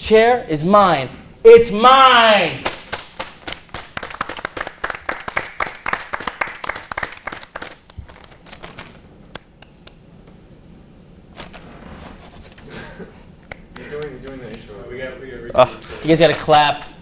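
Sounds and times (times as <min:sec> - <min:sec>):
hand clapping: 0:02.6 - 0:08.1, 0:09.3 - 0:10.0, 0:13.4 - 0:14.6.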